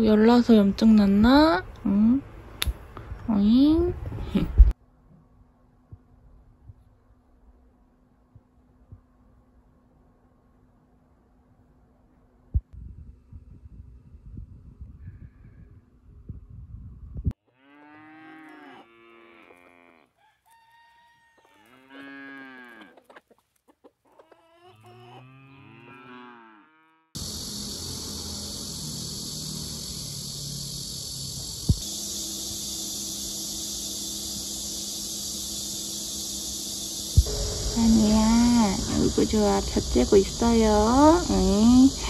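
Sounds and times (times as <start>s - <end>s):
high insect chirring: 27.2s - 42.0s.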